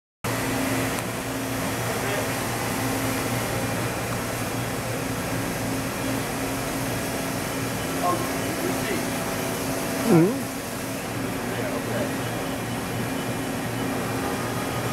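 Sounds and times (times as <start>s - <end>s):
machinery humming and whirring: 0.3s - 14.9s.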